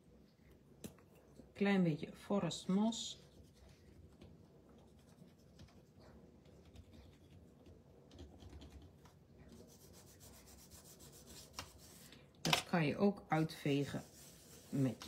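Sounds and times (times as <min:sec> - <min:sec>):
crayon rubbing on cardstock: 0:09.6 - 0:12.1, 0:13.7 - 0:15.0.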